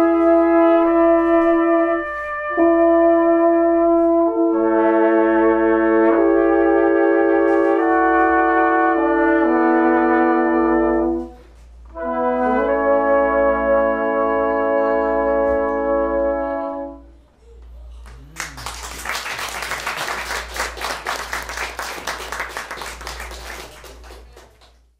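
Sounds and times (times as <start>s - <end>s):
brass quartet chord: 0.0s - 17.1s
audience applause: 18.0s - 24.9s.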